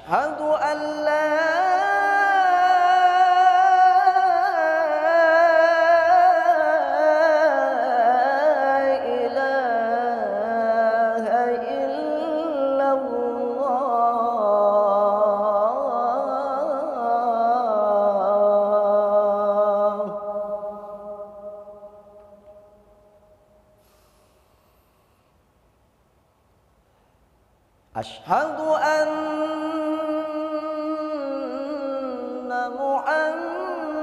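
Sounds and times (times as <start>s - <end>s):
man singing call to prayer: 0.0s - 22.8s, 28.0s - 34.0s.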